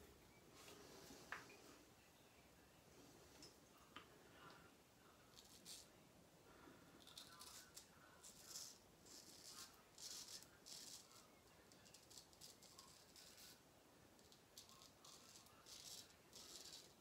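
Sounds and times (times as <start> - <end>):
razor scraping stubble: 5.3 - 5.9, 7.0 - 13.6, 14.2 - 17.0.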